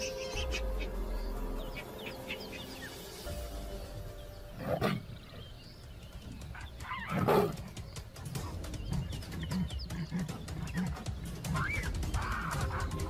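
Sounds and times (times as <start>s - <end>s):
quiet natural background: 0.0s - 13.0s
wild animal calls: 6.5s - 13.0s.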